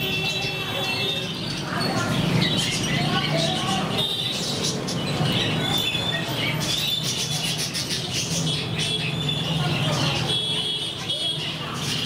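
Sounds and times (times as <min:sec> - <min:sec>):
budgerigars chattering: 0:00.0 - 0:12.0.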